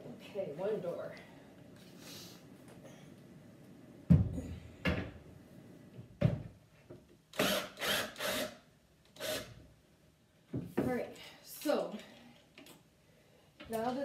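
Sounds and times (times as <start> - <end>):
cordless screw gun running: 7.4 - 8.6, 9.2 - 9.5.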